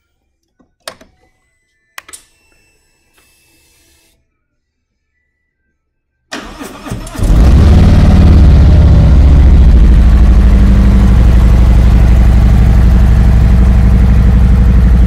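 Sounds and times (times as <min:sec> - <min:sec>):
motorcycle engine idling: 0:09.2 - 0:15.0.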